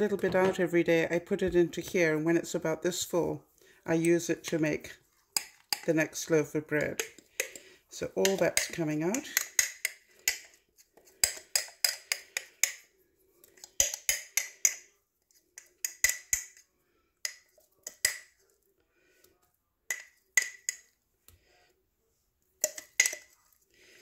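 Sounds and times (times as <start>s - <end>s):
metal utensil clinking on a jar: 22.6s - 23.4s.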